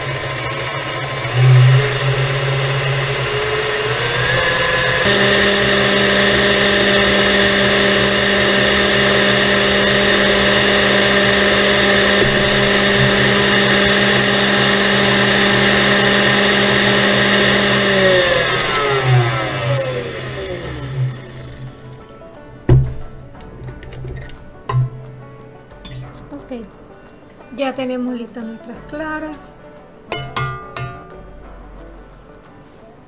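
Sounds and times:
stand mixer motor whine: 0.0 - 22.0.

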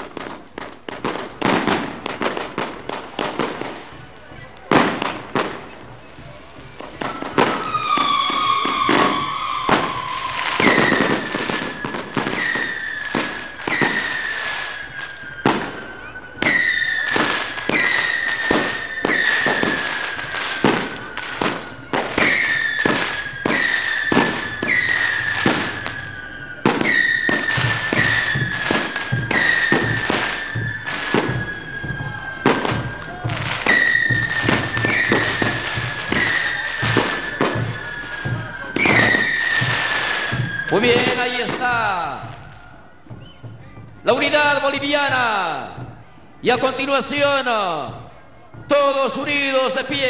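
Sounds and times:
firecrackers banging: 0.0 - 50.0
high whistling tone sliding down: 6.8 - 21.3, 22.2 - 43.5.

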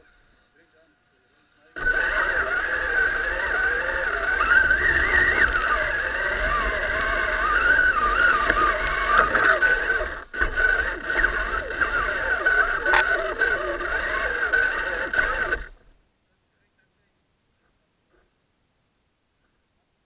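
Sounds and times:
driving over dry leaves: 1.8 - 15.9
toy truck motor whine: 1.8 - 15.9.

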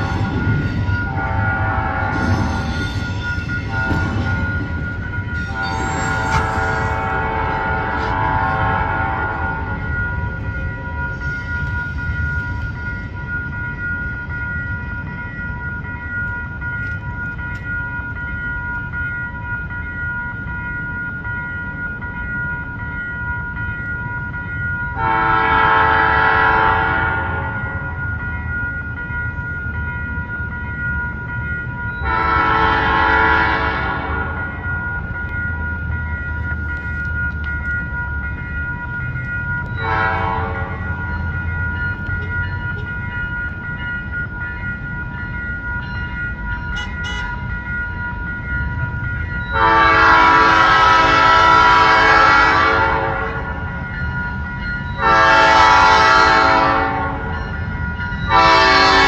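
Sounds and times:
low rumble of train: 0.0 - 59.0
locomotive air horn blasts: 1.1 - 2.8, 5.5 - 9.8, 25.0 - 27.6, 32.0 - 34.4, 39.8 - 40.8, 46.7 - 47.4, 49.6 - 53.6, 55.0 - 57.3, 58.3 - 59.0.

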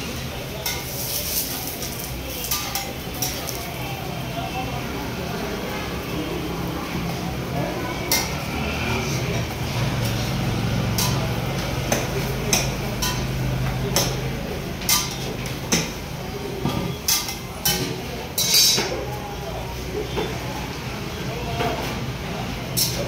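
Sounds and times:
metal spatula clinking on griddle: 0.6 - 3.6, 17.1 - 18.9.

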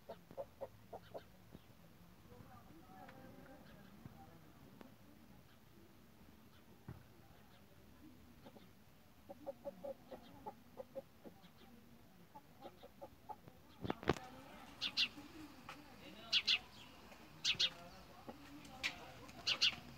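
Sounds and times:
hens clucking: 0.0 - 1.7, 8.3 - 19.9.

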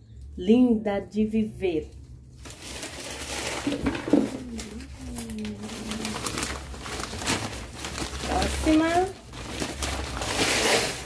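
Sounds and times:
paper and plastic crinkling: 2.0 - 11.0
low cooing sound: 4.2 - 6.4.

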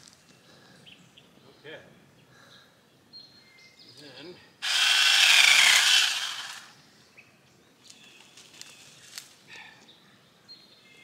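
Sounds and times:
electric motor winding down: 4.6 - 6.7.

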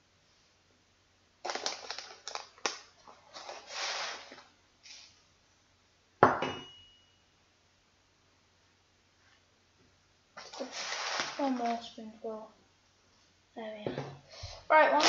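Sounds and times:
rice pouring: 3.2 - 4.4, 10.4 - 11.4
sharp knock with ring: 6.2 - 7.1.

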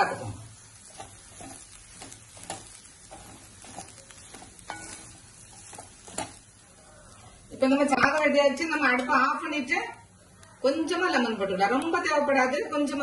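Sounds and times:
faint sizzle: 0.0 - 13.0
spatula scraping pan: 0.1 - 6.5.

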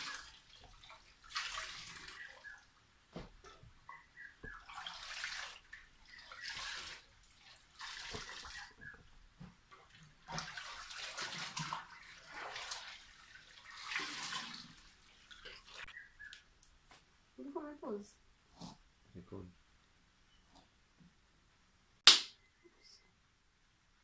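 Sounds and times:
water sloshing in washing machine tub: 0.0 - 16.0.

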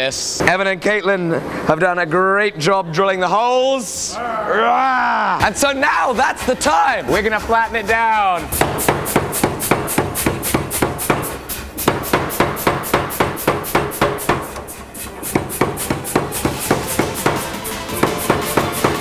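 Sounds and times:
power hammer striking hot steel: 8.5 - 19.0.

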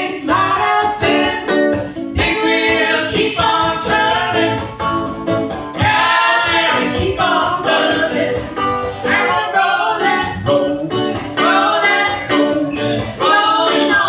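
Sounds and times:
woman singing: 0.0 - 1.6, 11.4 - 14.0
electric guitar: 0.0 - 5.9, 6.5 - 14.0.

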